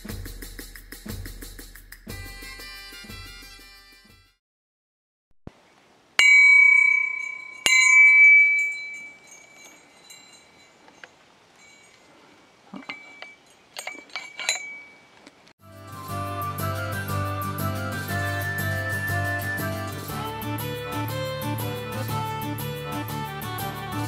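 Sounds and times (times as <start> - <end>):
hammer clanging on steel pipe: 6.2 - 10.2.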